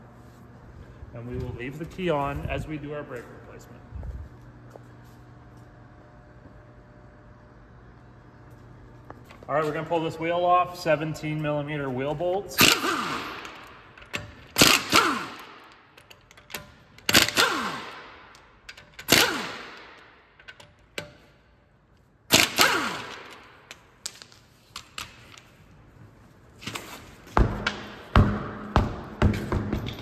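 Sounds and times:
impact wrench rattling: 12.4s - 21.4s, 22.3s - 25.5s.

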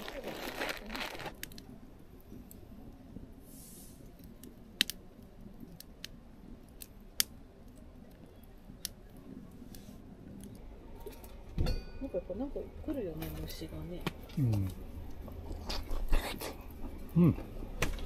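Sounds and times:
wood fire crackling and popping: 0.0s - 18.0s.

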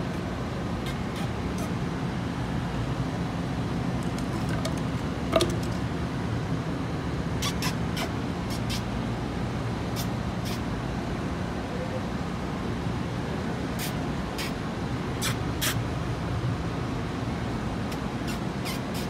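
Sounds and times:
street traffic rumble: 0.0s - 19.0s
short sharp hissing: 13.8s - 14.6s, 15.2s - 15.8s.

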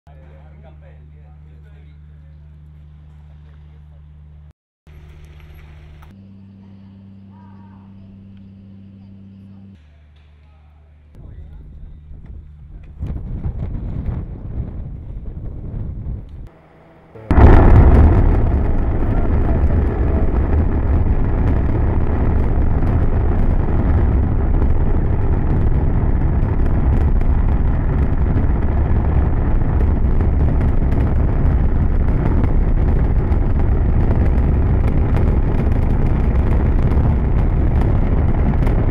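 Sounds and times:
rocket motor rumbling with crackle: 4.9s - 6.2s, 11.3s - 16.5s, 17.2s - 38.9s.

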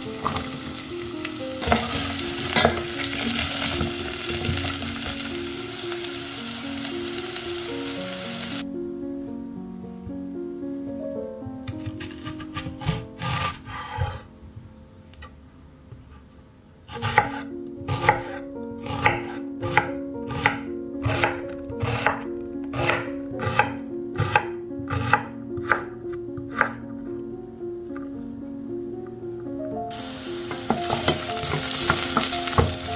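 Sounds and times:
knife chopping onion on board: 16.9s - 26.8s.

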